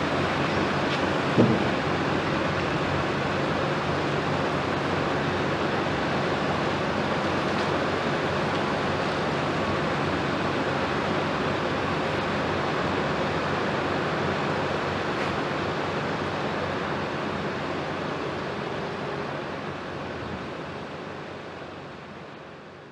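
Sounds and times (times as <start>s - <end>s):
excavator diesel engines under load: 0.0s - 22.9s.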